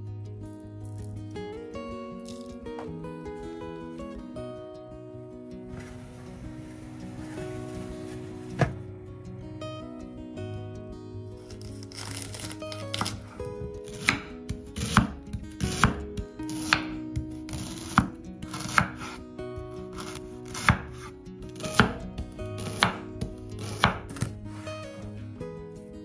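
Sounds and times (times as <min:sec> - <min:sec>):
knife slicing fennel: 0:11.4 - 0:19.2, 0:19.9 - 0:22.0, 0:22.6 - 0:24.6.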